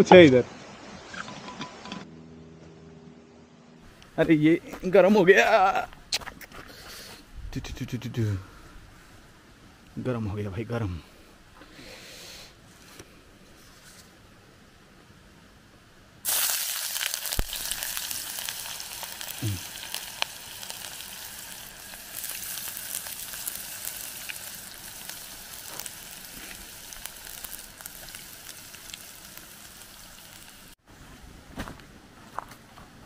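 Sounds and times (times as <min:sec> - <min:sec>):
onion sizzling in hot oil: 0:16.2 - 0:30.8.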